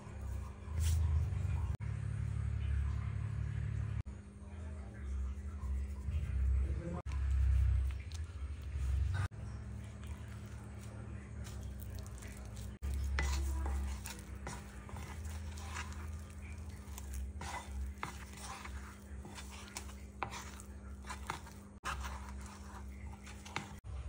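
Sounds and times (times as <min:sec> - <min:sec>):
utensil clinking and scraping bowl: 0:07.1 - 0:23.9.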